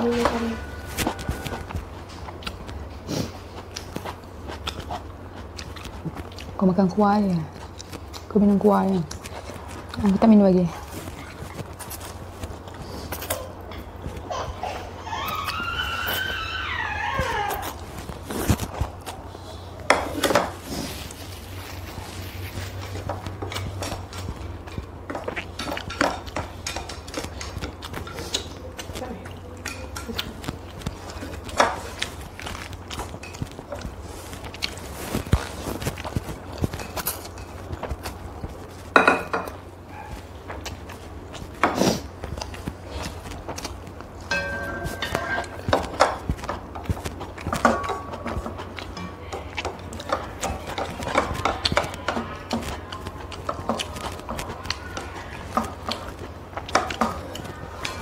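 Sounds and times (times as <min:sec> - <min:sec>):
noodles slurped and chewed: 0:07.4 - 0:44.3, 0:45.2 - 0:58.0
chopsticks clinking on bowls: 0:23.5 - 0:33.9, 0:44.2 - 0:58.0.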